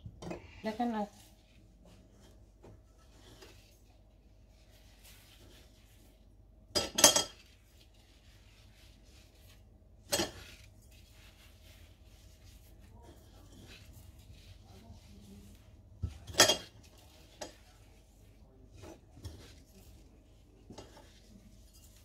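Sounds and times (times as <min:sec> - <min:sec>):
faint rubbing and handling: 0:00.0 - 0:22.0
kitchenware clinking on stone: 0:06.7 - 0:07.5, 0:16.0 - 0:16.8.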